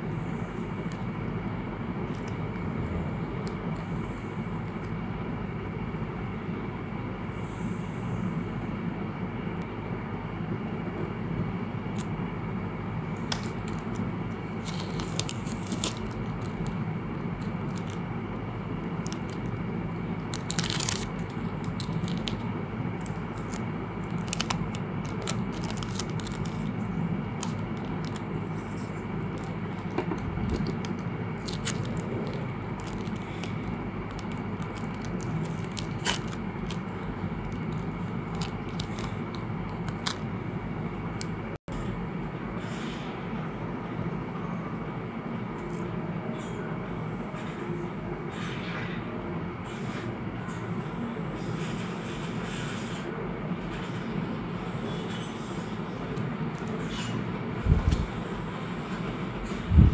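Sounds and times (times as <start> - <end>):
low background rumble: 0.0 - 42.4, 54.3 - 59.9
plastic bag crinkling: 13.2 - 16.8, 17.4 - 18.1, 18.9 - 19.6, 20.2 - 40.3.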